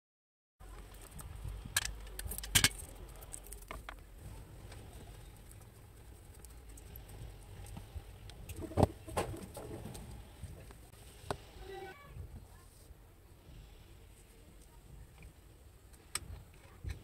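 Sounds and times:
hands rustling with cable: 0.6s - 11.0s
steady low rumble: 0.6s - 11.6s.

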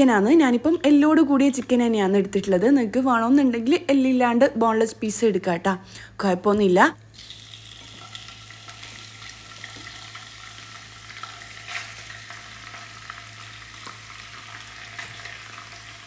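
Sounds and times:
chicken sizzling in oil: 7.2s - 16.0s.

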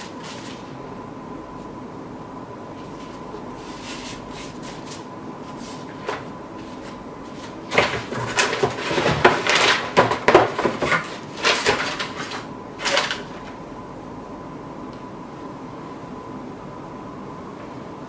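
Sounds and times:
faint steady whine: 0.0s - 18.0s
papers rustling: 2.8s - 13.6s
cardboard scraping and knocks: 3.1s - 13.2s.

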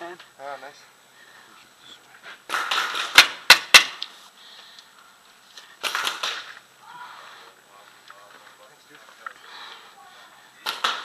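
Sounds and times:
paintball marker shots: 2.5s - 4.1s, 5.8s - 6.6s, 10.6s - 11.0s.

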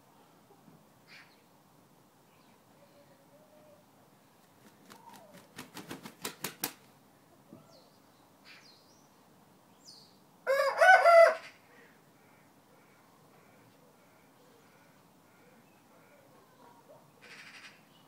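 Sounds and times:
rooster flapping wings: 4.4s - 6.9s
rooster crowing: 10.5s - 11.5s.

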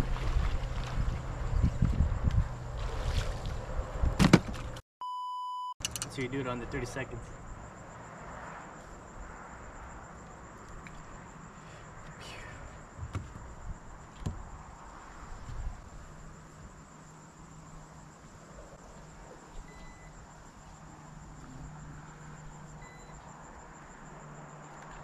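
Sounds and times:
insects chirring: 5.8s - 25.0s.

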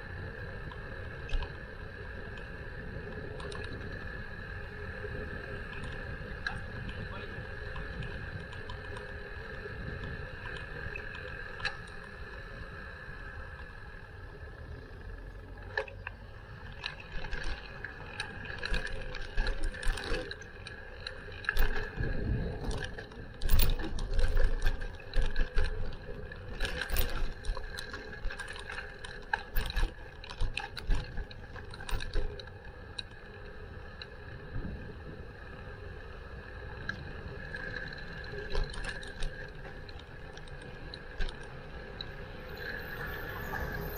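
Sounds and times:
bicycle rumble and whine: 0.0s - 43.9s
bike rattling over bumps: 15.6s - 36.3s, 36.9s - 43.9s.

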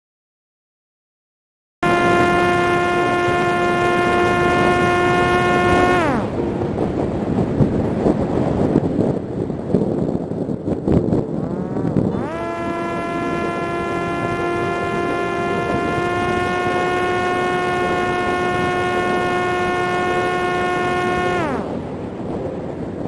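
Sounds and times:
electric propeller motor whining: 1.8s - 22.4s
wind noise: 1.8s - 23.0s.

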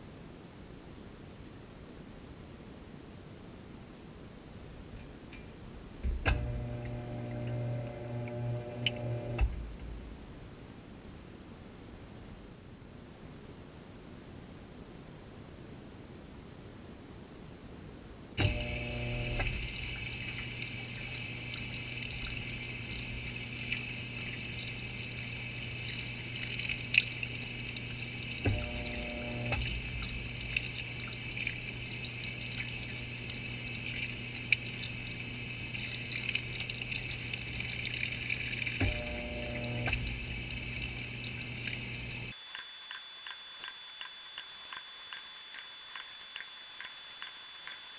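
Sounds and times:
washing machine low hum: 5.7s - 10.5s, 18.4s - 42.4s
short humming tone: 6.3s - 9.6s, 28.4s - 30.6s, 38.8s - 42.3s
water and clothes sloshing: 18.4s - 42.4s.

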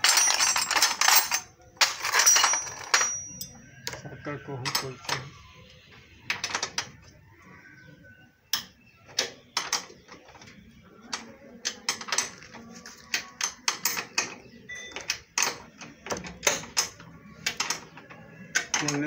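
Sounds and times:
metal tools clicking and clinking: 0.0s - 4.0s, 4.6s - 5.3s, 9.2s - 19.0s.

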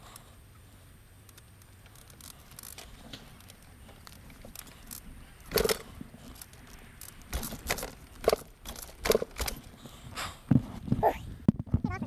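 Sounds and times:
dirt bike rattling on pavement: 1.5s - 9.9s.

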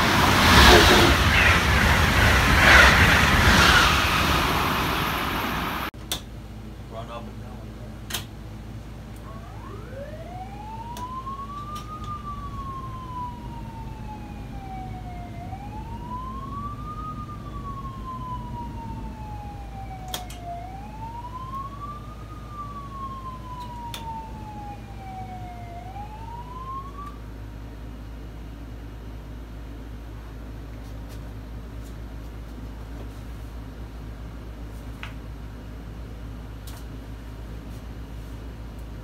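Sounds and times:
motor-driven warning siren: 0.0s - 5.3s, 9.2s - 27.2s.

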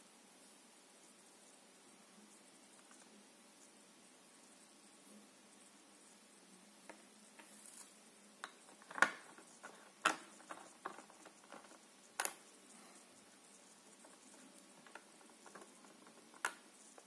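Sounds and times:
small plastic clicks and taps: 8.4s - 12.5s, 14.0s - 16.7s.

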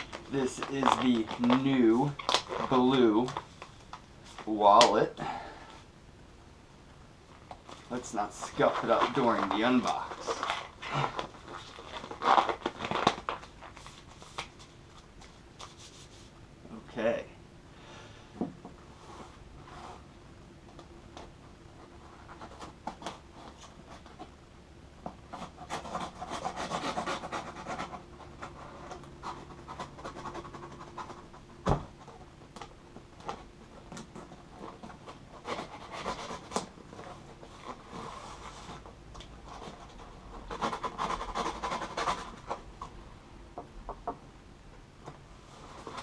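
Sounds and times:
knife cutting packing tape: 25.6s - 27.9s.

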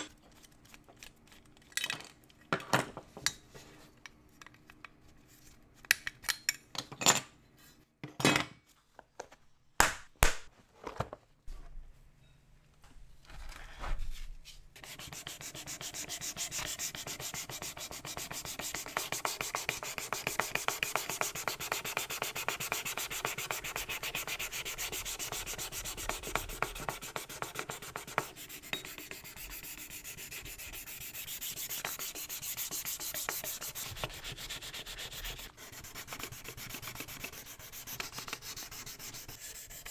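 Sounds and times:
sanding pad rubbing on metal: 14.8s - 39.9s.

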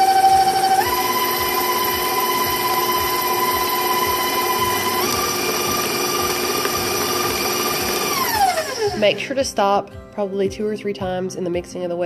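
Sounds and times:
stand mixer motor whine: 0.0s - 9.0s.

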